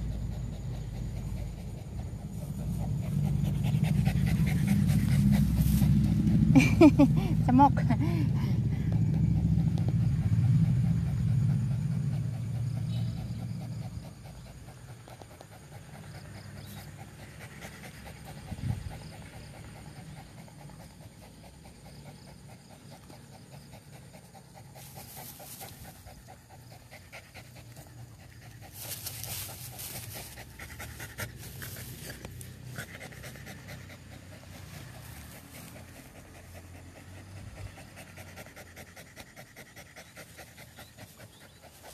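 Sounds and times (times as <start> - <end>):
loud low rumble: 0.0 - 14.1
dog panting: 0.0 - 41.9.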